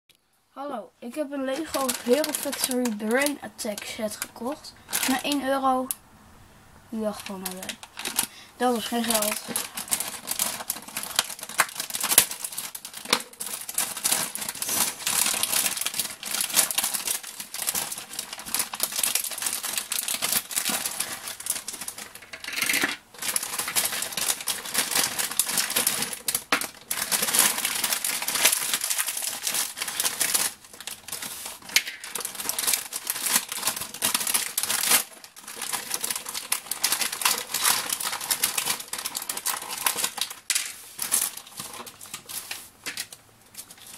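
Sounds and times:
plastic bag crinkling: 1.1 - 5.9, 7.0 - 43.9
plastic pieces clicking: 8.9 - 43.9.

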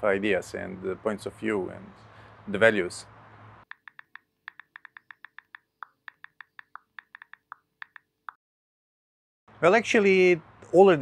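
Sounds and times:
keyboard keystroke clicks: 3.7 - 8.4.

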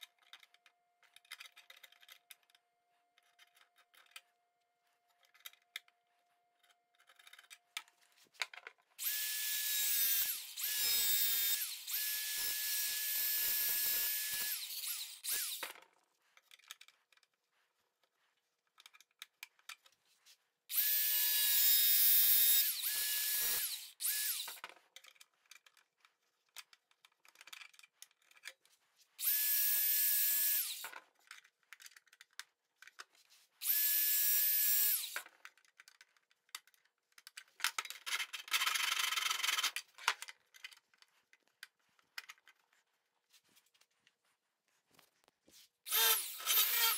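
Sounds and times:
angle grinder on metal: 9.0 - 15.6, 20.7 - 24.6, 29.2 - 30.8, 33.6 - 35.2, 45.9 - 46.9
faint scraping and tapping: 15.8 - 20.6.

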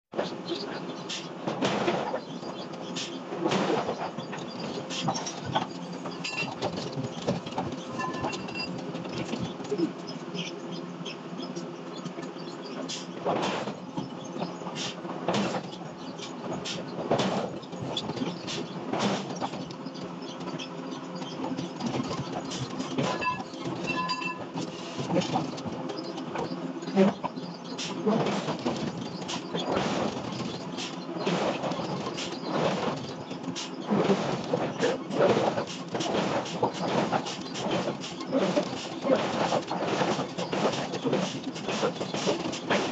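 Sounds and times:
metal clanks and knocks: 3.6 - 9.6, 20.4 - 26.4.

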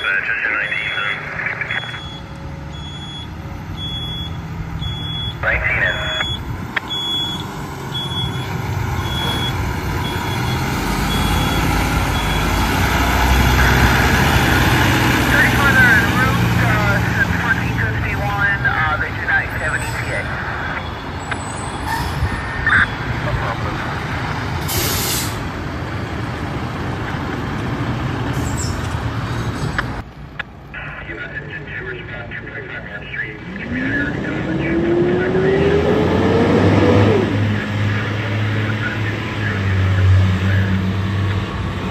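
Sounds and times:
backup alarm beeping: 0.0 - 12.6, 22.3 - 23.2
truck engine rumble: 0.0 - 41.9.

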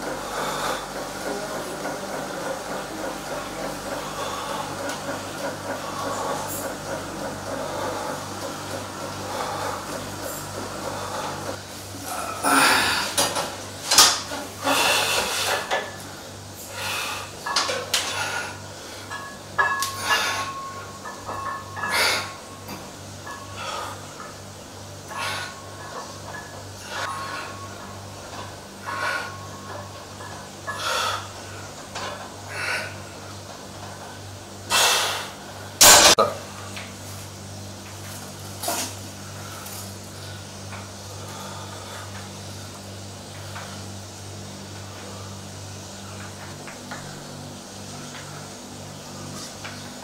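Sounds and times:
steady low hum: 0.0 - 50.0.

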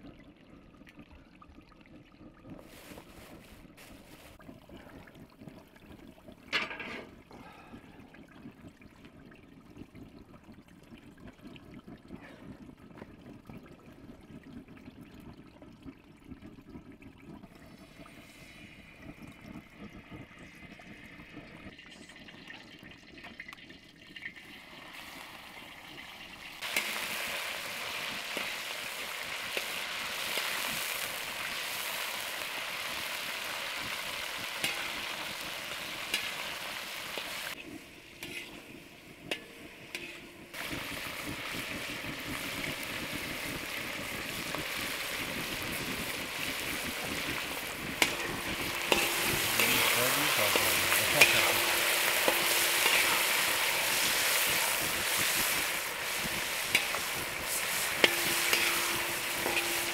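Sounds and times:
meat sizzling in hot oil: 23.0 - 59.9
metal spatula stirring in pan: 26.6 - 43.3, 45.4 - 59.9.

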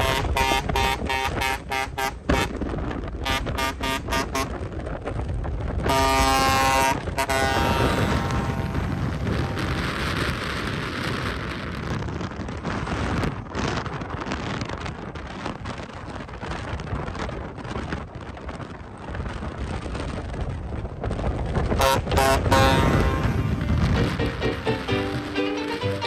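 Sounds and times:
truck road noise rumble: 0.0 - 26.0
wind noise on microphone: 0.0 - 26.0
music: 23.8 - 26.0.

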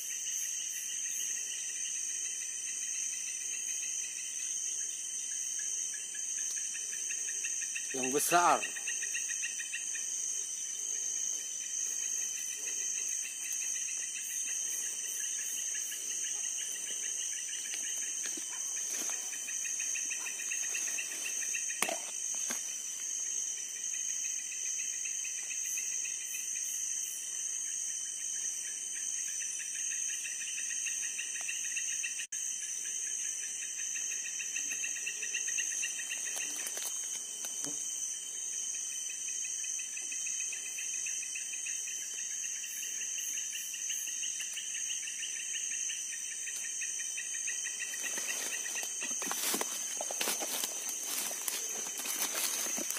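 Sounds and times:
insects buzzing and chirping: 0.0 - 52.9.

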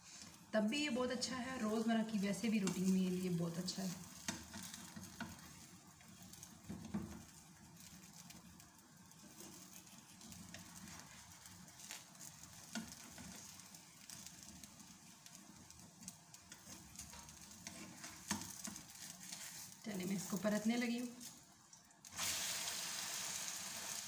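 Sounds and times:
faint sizzle of frying: 0.0 - 24.0
spatula tapping and scraping pan: 3.9 - 8.4, 9.1 - 19.8.

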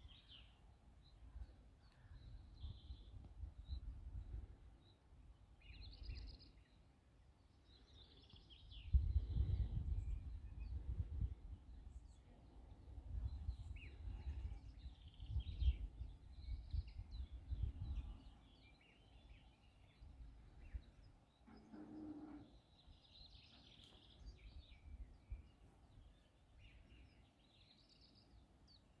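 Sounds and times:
small birds chirping: 0.0 - 29.0
wind buffeting microphone: 8.7 - 12.1, 12.8 - 18.3.

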